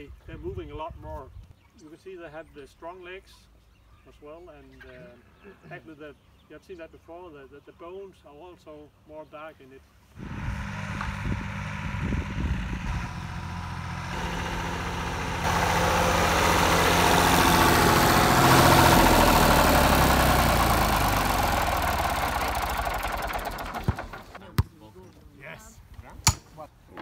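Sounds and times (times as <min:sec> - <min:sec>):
tractor engine running: 0:10.2 - 0:24.4.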